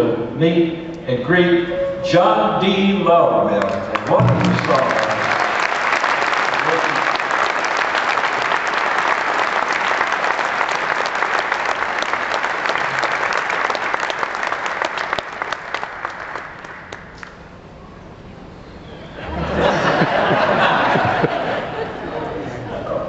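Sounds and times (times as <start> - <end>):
audience applauding: 3.6 - 17.4.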